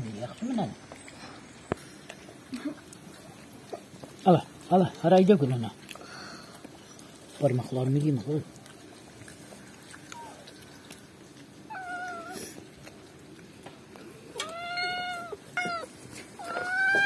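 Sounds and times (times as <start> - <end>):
cat meowing: 11.7 - 12.6, 14.3 - 17.0.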